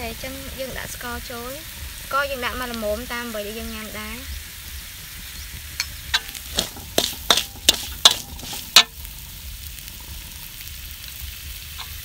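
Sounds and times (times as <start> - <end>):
low sizzle: 0.0 - 12.0
metal spatula scraping wok: 5.7 - 10.7.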